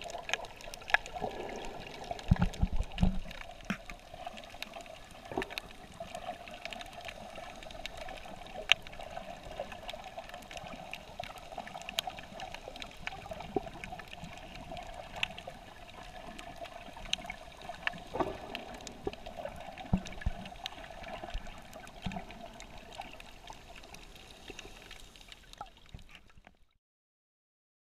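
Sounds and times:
underwater muffled wash: 0:00.0 - 0:26.4
underwater clicks and crackles: 0:00.0 - 0:26.8.

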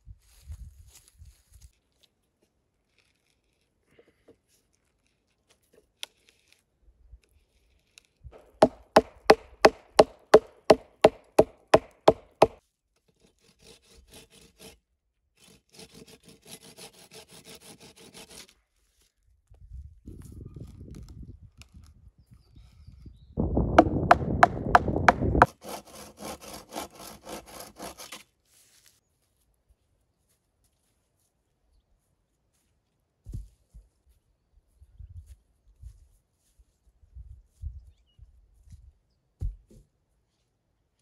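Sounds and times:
hatchet blows on logs: 0:08.4 - 0:12.6, 0:23.6 - 0:28.2
scraping on wood: 0:08.4 - 0:12.6, 0:23.8 - 0:28.2.

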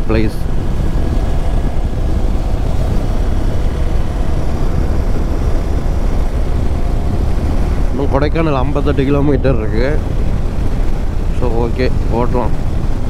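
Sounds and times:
motorcycle engine running: 0:00.0 - 0:13.0
wind rumble on microphone: 0:00.0 - 0:13.0.

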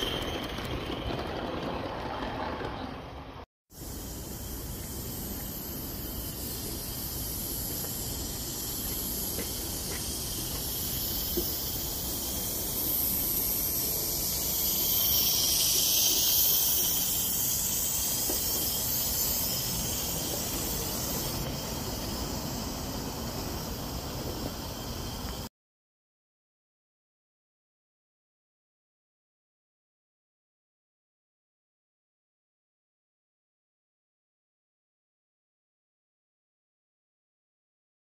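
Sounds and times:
steam locomotive hissing: 0:03.7 - 0:25.5.

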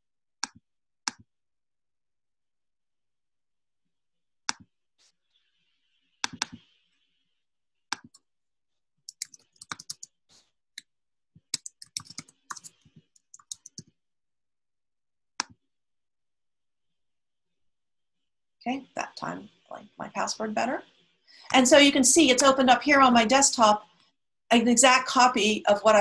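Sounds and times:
computer keyboard typing: 0:09.0 - 0:10.2, 0:11.4 - 0:13.9.

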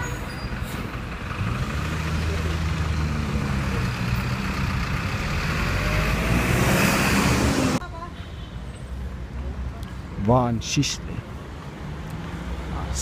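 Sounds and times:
vehicle engine humming: 0:00.0 - 0:08.0
street traffic: 0:00.0 - 0:13.0.

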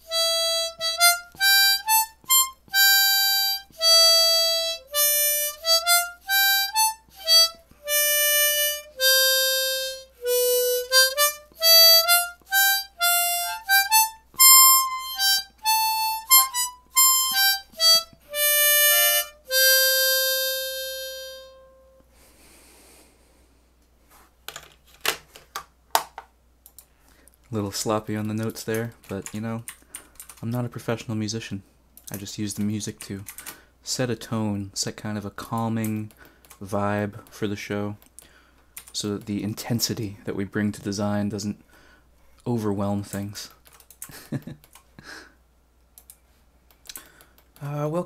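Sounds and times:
solo instrumental melody: 0:00.0 - 0:22.1
faint clicks: 0:26.6 - 0:27.6, 0:43.1 - 0:45.0, 0:45.9 - 0:47.7.

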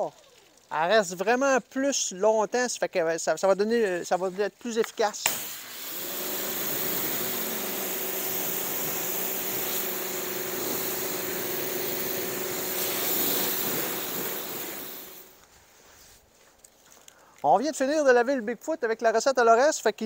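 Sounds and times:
pressure washer water jet hissing: 0:05.0 - 0:15.4
motor hum: 0:05.6 - 0:15.4.

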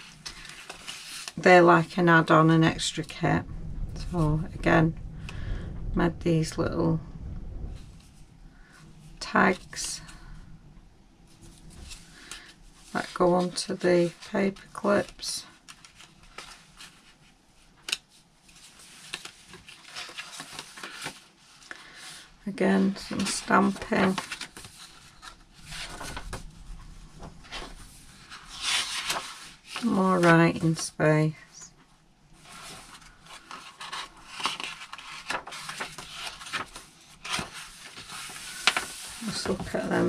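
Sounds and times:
paper rustling: 0:00.0 - 0:01.4, 0:11.3 - 0:30.9, 0:32.4 - 0:40.0.

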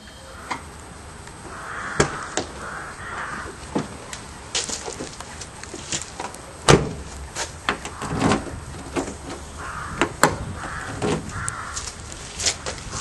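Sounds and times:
footsteps on block paving: 0:02.0 - 0:06.4
car door slamming: 0:06.6 - 0:07.1.

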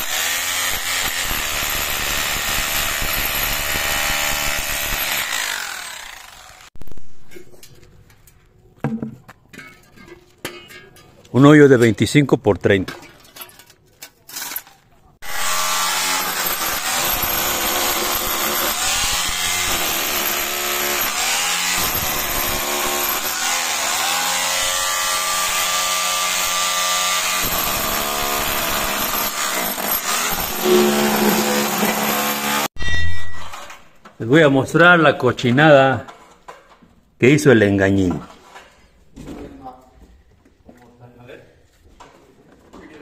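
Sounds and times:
rotary hammer drill into concrete: 0:00.0 - 0:06.7, 0:15.2 - 0:32.8.

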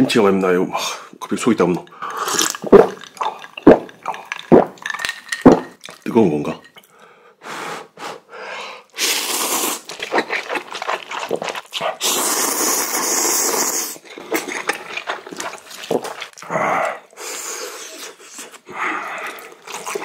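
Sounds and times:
slurping noodles: 0:02.0 - 0:04.8, 0:08.9 - 0:20.0
wet chewing: 0:02.1 - 0:06.0, 0:09.6 - 0:13.0, 0:14.0 - 0:16.5, 0:19.2 - 0:20.0.

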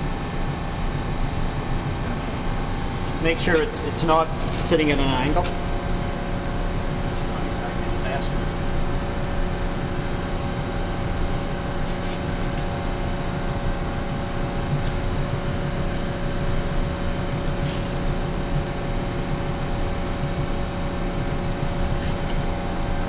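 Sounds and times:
machinery humming: 0:00.0 - 0:23.0.

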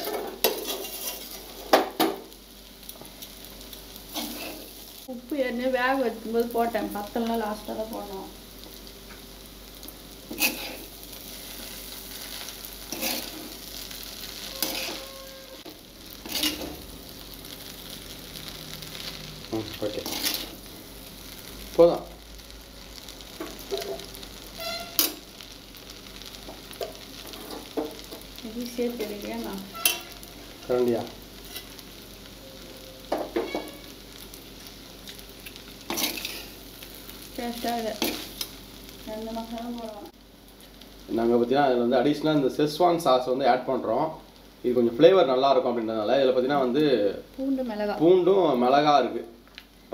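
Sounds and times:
steel spoon scraping a pan: 0:00.0 - 0:01.8, 0:04.1 - 0:04.7, 0:10.3 - 0:10.9, 0:12.9 - 0:13.6, 0:14.3 - 0:16.8, 0:19.9 - 0:20.6, 0:24.6 - 0:25.2, 0:29.6 - 0:30.3, 0:31.4 - 0:31.8, 0:33.1 - 0:33.9, 0:35.9 - 0:36.6
noodles sizzling: 0:00.0 - 0:49.9.

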